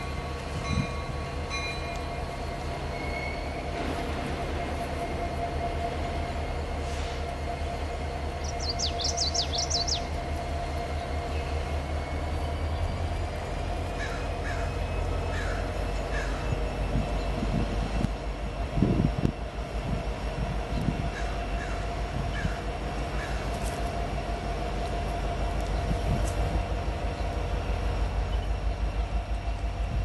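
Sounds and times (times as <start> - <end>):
freight train rumbling by: 0.0 - 30.0
bird harsh sweeping calls: 8.4 - 10.1.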